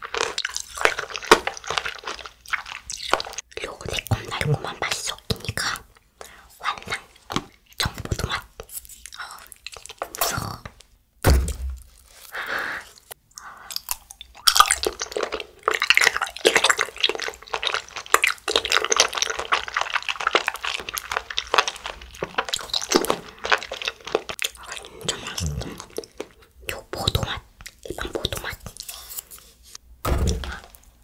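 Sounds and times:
wet squishy chewing: 0.0 - 5.9, 6.7 - 10.9, 11.8 - 29.4
soft thump: 11.2 - 11.8, 30.0 - 30.6.

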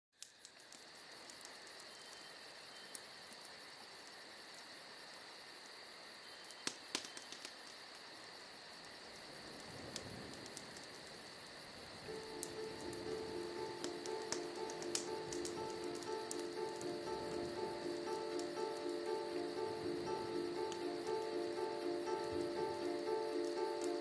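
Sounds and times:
cricket-like chirring trill: 0.2 - 24.0
sharp clicks: 12.1 - 18.9
held musical tones: 12.1 - 24.0.

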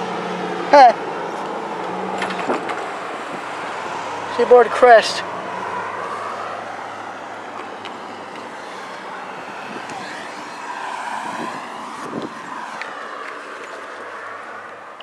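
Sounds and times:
road traffic rushing: 0.0 - 15.0.

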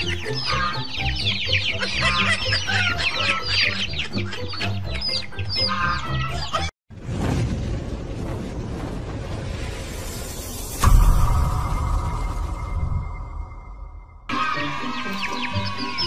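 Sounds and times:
background music: 0.0 - 6.7, 10.8 - 16.0
chicks peeping and clucking: 0.0 - 6.7
rushing noise: 6.9 - 14.3.

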